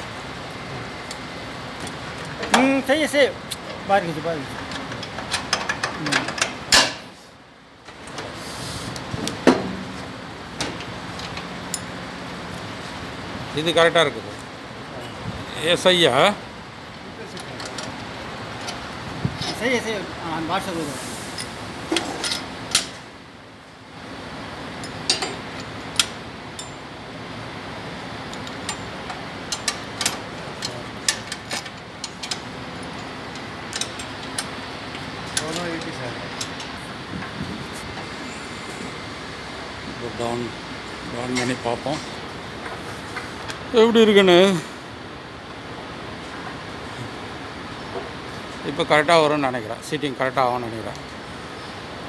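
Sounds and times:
steady low hum: 0.0s - 52.0s
spanner clinking on metal: 21.4s - 23.0s, 24.8s - 26.9s, 28.3s - 36.8s.

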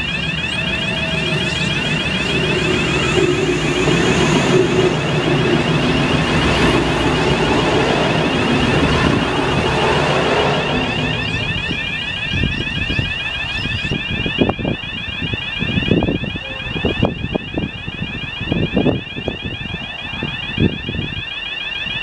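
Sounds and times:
diesel train rumbling past: 0.0s - 14.0s
high-pitched repeating warning tone: 0.0s - 22.0s.

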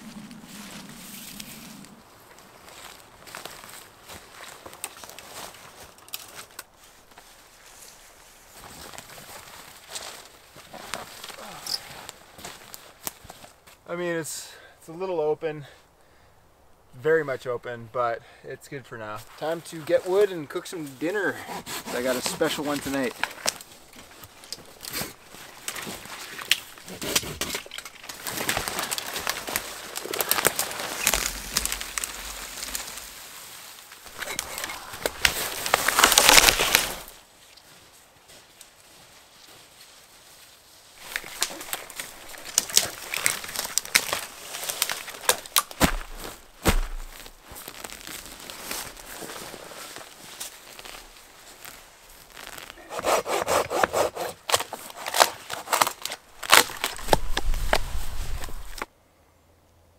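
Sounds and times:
branches dragged through brush: 0.0s - 13.8s, 19.2s - 58.9s
dry branches cracking and snapping: 0.0s - 13.8s, 22.1s - 37.7s, 41.0s - 52.9s, 53.7s - 58.9s
hand saw rasping through branch: 21.3s - 22.8s, 52.8s - 56.0s.

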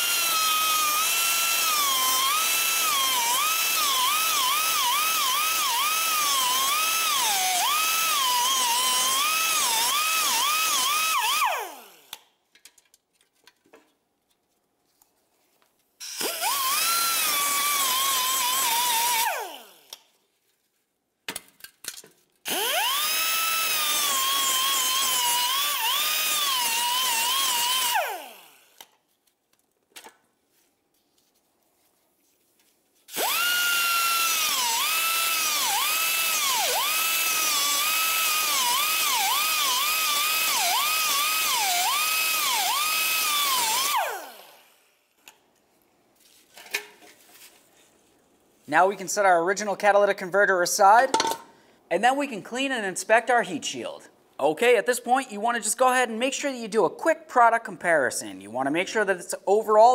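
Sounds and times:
cutoff wheel cutting metal: 0.0s - 12.2s, 16.0s - 20.0s, 22.5s - 28.8s, 33.1s - 44.7s.

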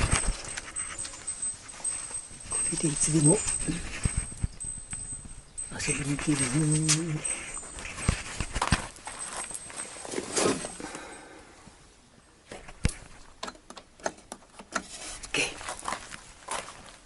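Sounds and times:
handling rustle: 0.0s - 11.3s.

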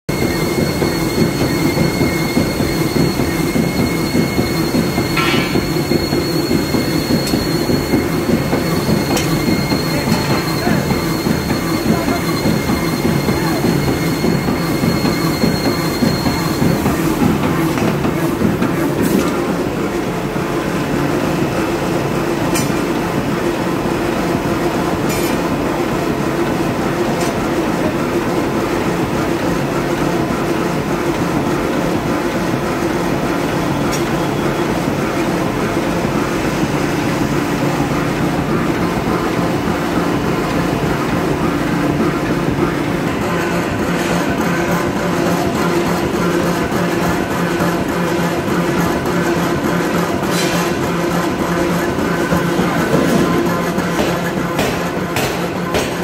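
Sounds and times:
power hammer rhythmic clatter: 0.1s - 20.4s, 25.0s - 56.0s
sharp knocks: 53.9s - 56.0s.

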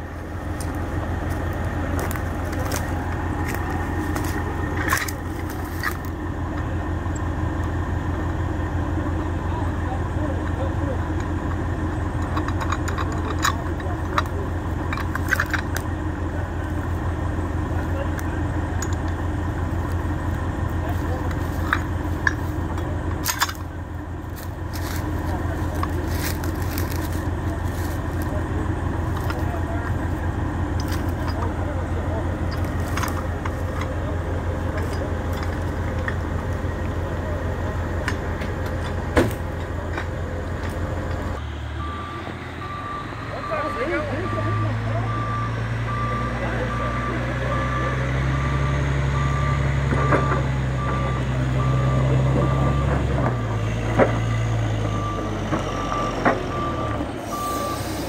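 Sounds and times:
engine idling: 0.0s - 58.0s
metallic clicks and knocks: 12.2s - 15.9s, 21.2s - 23.7s.

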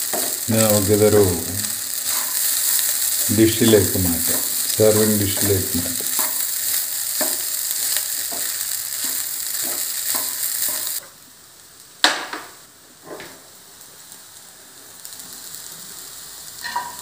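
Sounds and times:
faint hiss: 0.0s - 6.4s, 10.2s - 17.0s
rice sizzling in a pan: 0.0s - 17.0s
wooden spatula knocking on pan: 7.2s - 7.4s, 8.3s - 10.9s
sharp pan clank: 16.6s - 17.0s.

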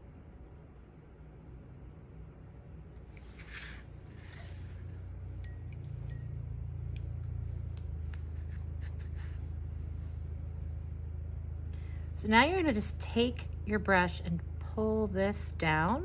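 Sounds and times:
steady low hum: 0.0s - 16.0s
faint clinks and taps: 5.3s - 7.4s.

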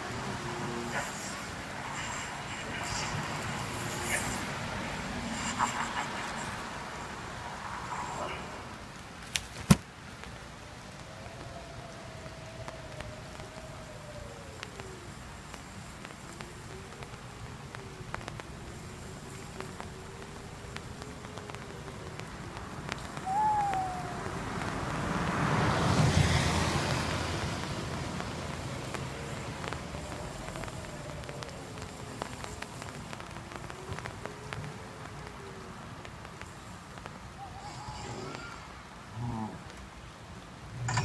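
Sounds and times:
eerie wavering moan: 0.0s - 8.9s, 10.6s - 36.4s, 37.3s - 39.8s
rush of noise: 0.0s - 9.2s, 9.9s - 41.0s
short falling cry: 19.3s - 25.0s.

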